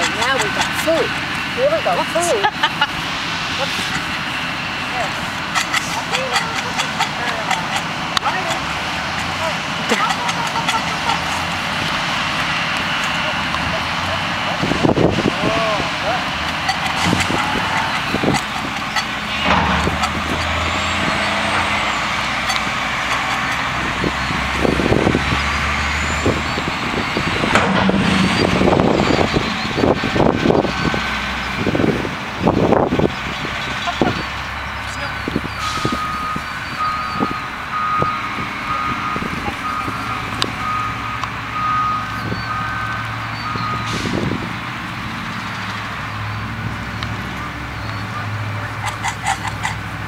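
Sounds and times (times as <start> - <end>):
engine humming: 0.0 - 50.0
reversing alarm beeping: 34.1 - 44.2.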